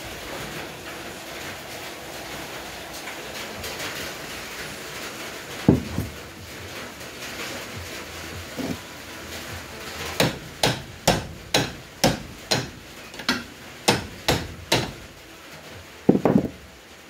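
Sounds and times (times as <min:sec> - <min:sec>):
heavy metal clunk: 0:05.6 - 0:06.2, 0:16.1 - 0:16.6
hammer striking metal: 0:10.2 - 0:15.1.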